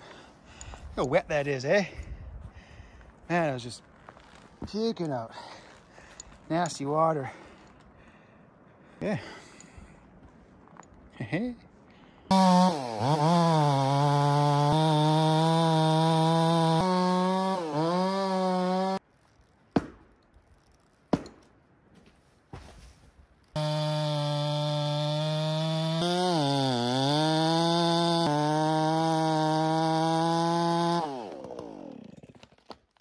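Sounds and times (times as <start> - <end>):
chainsaw cutting wood: 12.3 - 19.0, 23.5 - 32.8.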